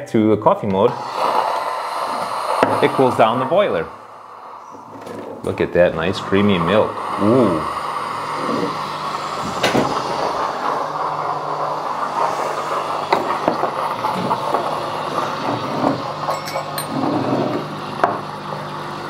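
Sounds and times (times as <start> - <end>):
steam hissing: 0.7 - 19.0
espresso machine humming: 0.9 - 19.0
glassware clinking: 16.2 - 17.5.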